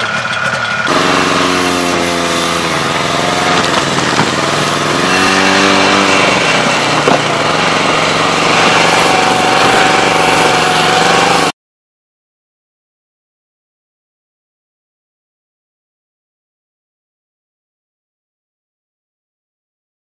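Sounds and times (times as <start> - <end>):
snowmobile engine running: 0.0 - 11.5
steady rushing noise: 0.8 - 11.5.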